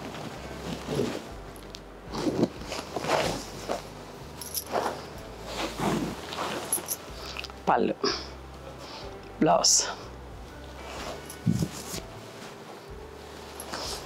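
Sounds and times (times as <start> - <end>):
cloth rustling and swishing: 0.0 - 7.4, 10.6 - 14.0
low steady hum: 0.0 - 14.0.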